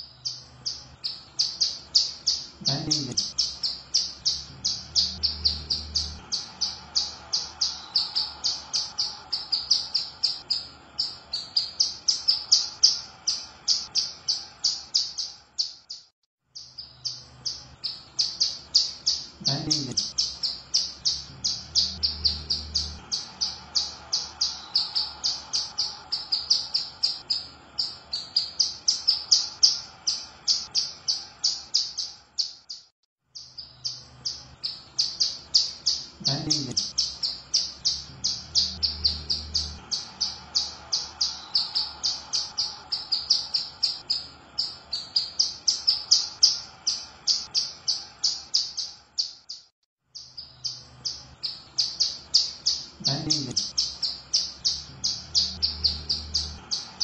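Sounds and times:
bird chirping: 0.0s - 57.0s.

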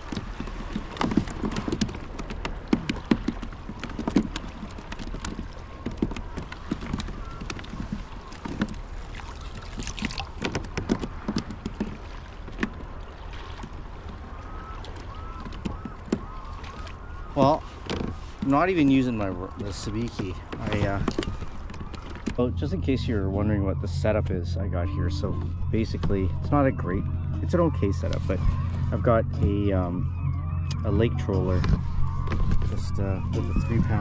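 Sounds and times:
net knocking against kayak: 0.0s - 8.8s, 9.6s - 12.9s, 13.6s - 18.6s, 19.5s - 22.4s
water splashing: 0.0s - 34.0s.

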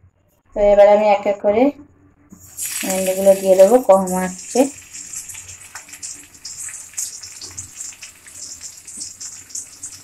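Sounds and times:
okra sizzling in oil: 2.4s - 10.0s.

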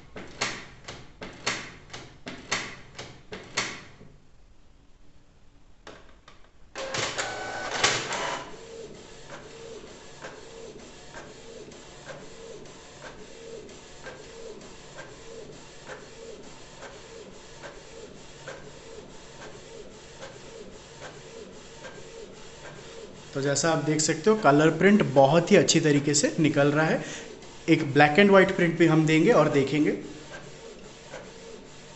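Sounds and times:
printer carriage sweeping: 6.8s - 8.6s
printer motor: 6.8s - 25.2s.

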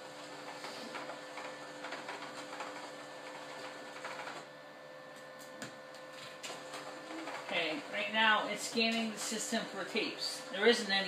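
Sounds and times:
tape mechanism whirring and clicking: 0.2s - 4.5s, 5.4s - 7.6s.

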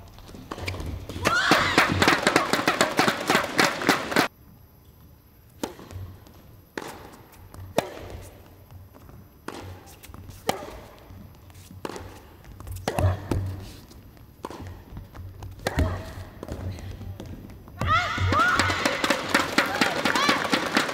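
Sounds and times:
tennis ball struck by rackets: 5.6s - 6.0s, 6.8s - 8.2s, 9.4s - 11.0s, 14.4s - 14.8s
tennis ball bouncing: 5.6s - 19.7s.

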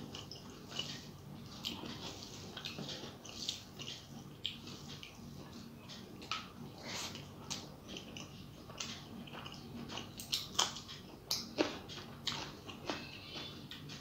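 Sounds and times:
wet chewing: 6.2s - 13.9s.

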